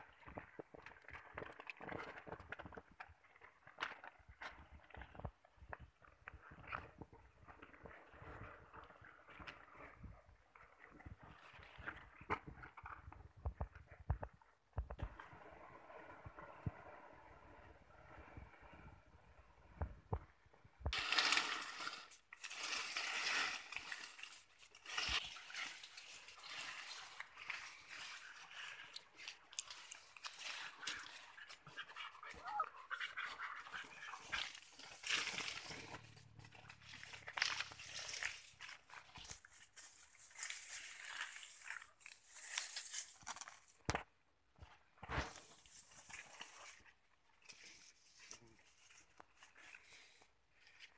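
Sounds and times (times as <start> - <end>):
leafy branches rustling: 21.0 - 43.8.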